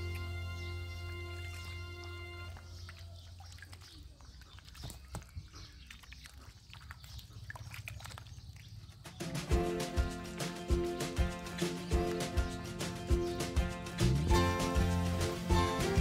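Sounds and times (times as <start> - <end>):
small water splashes: 1.3 - 9.4
background music: 9.2 - 16.0.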